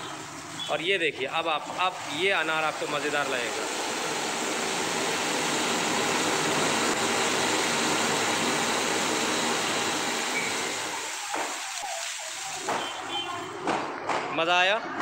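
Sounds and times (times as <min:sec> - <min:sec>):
fountain firework hissing: 0:00.0 - 0:13.6.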